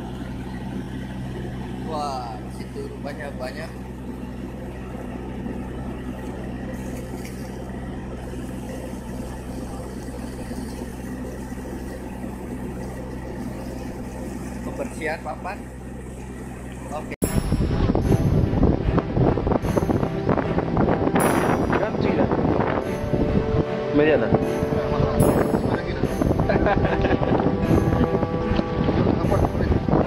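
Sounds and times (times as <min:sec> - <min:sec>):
boat engine and machinery drone: 0:00.0 - 0:30.0
wind buffeting microphone: 0:17.2 - 0:30.0.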